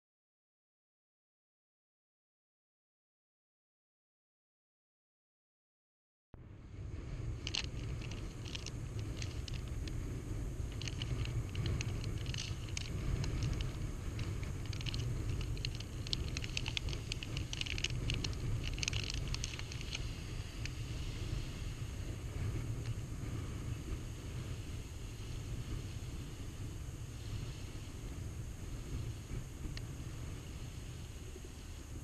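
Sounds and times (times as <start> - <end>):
wind rumble on microphone: 6.4 - 32.0
small waves: 6.7 - 32.0
scattered crackles and ticks: 6.9 - 32.0.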